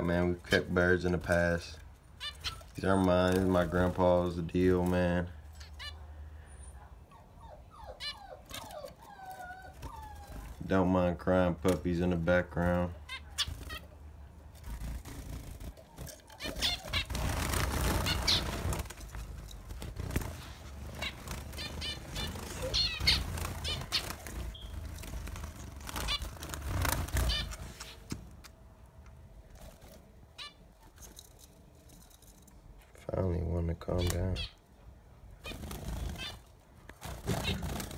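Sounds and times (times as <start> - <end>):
finches wings flapping: 14.6 - 28.3, 35.4 - 37.9.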